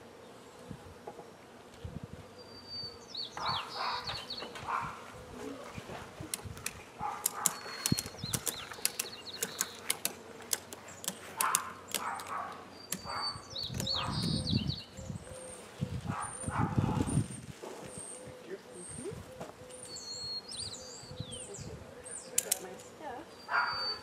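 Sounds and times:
wind buffeting microphone: 1.8 - 2.2, 13.0 - 19.4, 20.8 - 22.0
ratchet strap clicking: 6.4 - 12.4.

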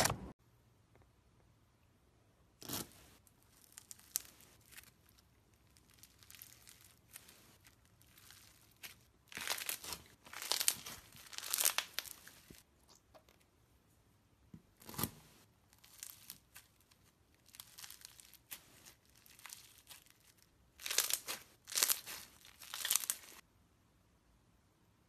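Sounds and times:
crunchy slime crackling: 2.6 - 13.1, 14.8 - 23.4.

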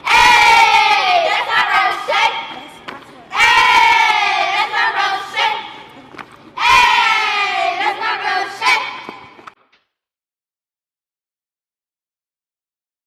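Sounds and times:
crowd shouting together: 0.0 - 2.5, 3.3 - 5.8, 6.6 - 9.0.

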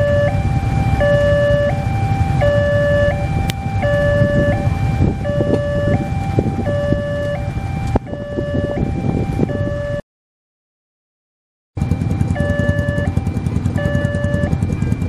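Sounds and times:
motorcycles idling: 0.0 - 8.7, 11.8 - 15.0
level crossing two-tone alarm: 0.0 - 10.0, 11.8 - 15.0.

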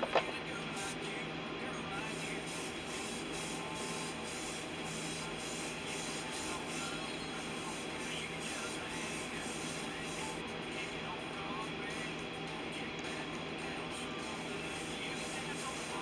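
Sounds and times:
airbrush spraying hiss: 0.8 - 1.0, 2.1 - 10.4, 14.4 - 16.0.

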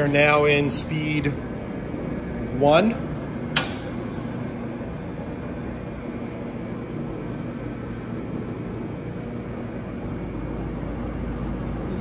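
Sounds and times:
mixer motor and gear hum: 0.0 - 12.0.

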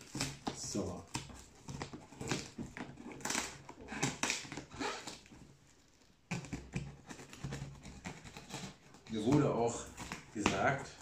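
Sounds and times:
duct tape ripping off cardboard: 0.0 - 5.5.

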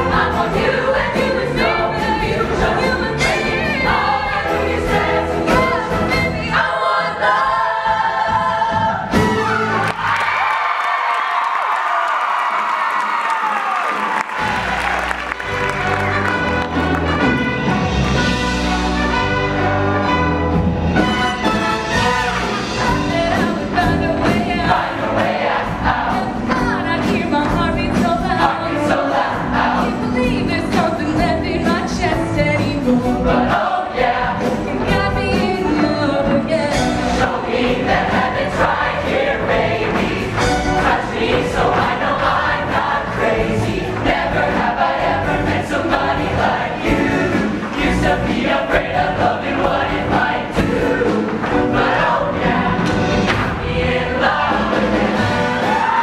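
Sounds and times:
choir singing: 0.0 - 10.6, 21.4 - 32.2, 32.9 - 56.0
instrumental accompaniment: 14.1 - 56.0.

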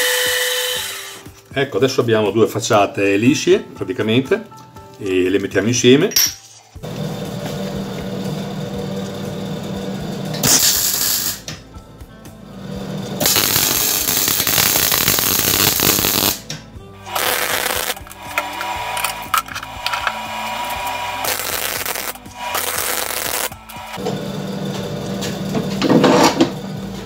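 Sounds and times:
welder hum: 0.0 - 1.3, 6.8 - 11.6, 12.5 - 27.0
crackling welding arc: 10.4 - 11.4, 13.2 - 16.5, 17.1 - 24.0.

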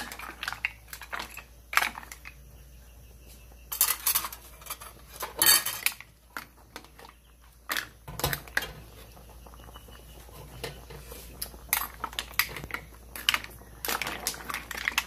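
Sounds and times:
utensil clinking against cookware: 3.7 - 6.5.

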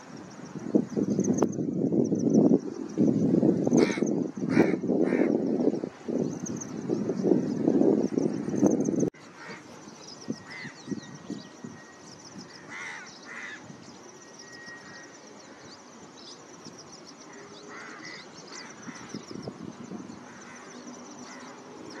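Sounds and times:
high chirping of small birds: 0.0 - 22.0
harsh bird calls: 3.7 - 8.6, 9.2 - 22.0.

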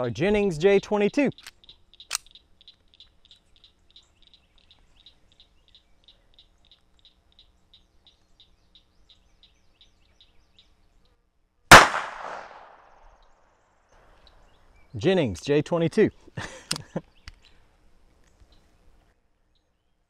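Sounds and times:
pistol shot with echo: 11.7 - 13.0.

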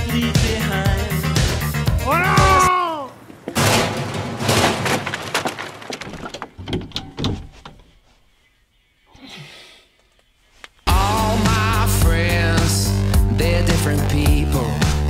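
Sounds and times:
bifold doors clattering open: 3.3 - 7.9.

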